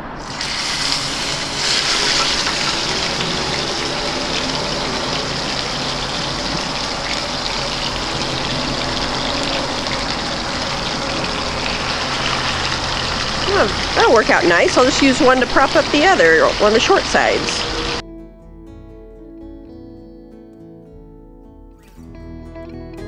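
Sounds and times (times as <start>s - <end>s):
meat sizzling in oil: 0.2s - 18.0s.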